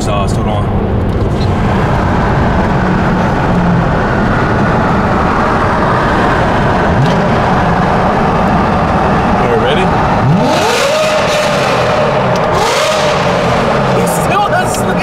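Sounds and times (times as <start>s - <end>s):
car engine revving in tunnel: 0.0s - 15.0s.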